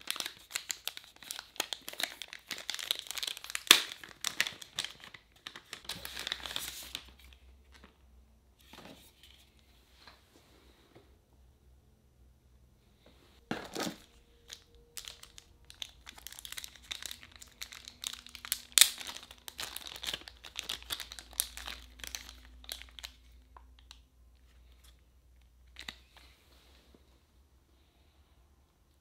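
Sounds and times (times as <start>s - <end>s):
plastic wrapping crinkling: 0.0s - 8.0s, 13.5s - 24.0s.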